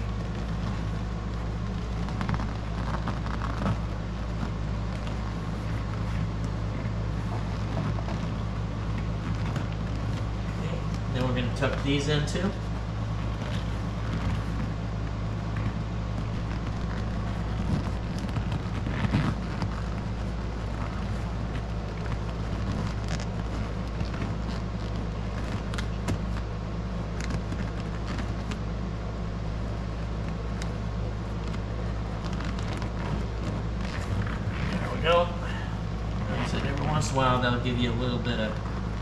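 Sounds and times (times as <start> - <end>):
fabric rustling: 0.0 - 39.0
steady low hum: 0.0 - 39.0.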